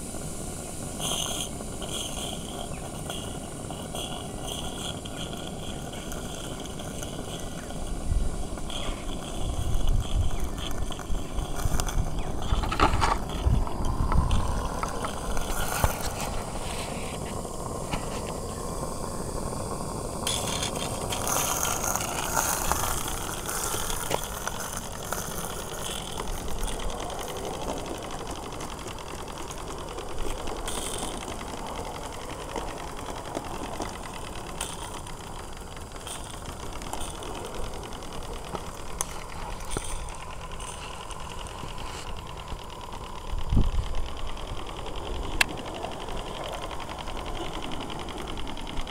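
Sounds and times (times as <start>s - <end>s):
model steam locomotive clatter: 0.0s - 48.9s.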